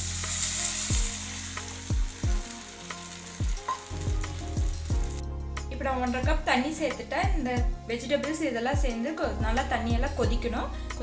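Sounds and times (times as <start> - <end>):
water sizzling in hot pan: 0.0 - 5.3
background music with deep drum hits: 0.0 - 11.0.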